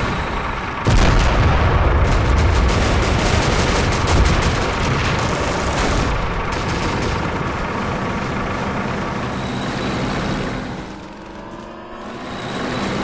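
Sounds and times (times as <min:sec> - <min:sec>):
tank engines rumbling: 0:00.0 - 0:13.0
machine-gun and rifle fire: 0:00.8 - 0:08.0.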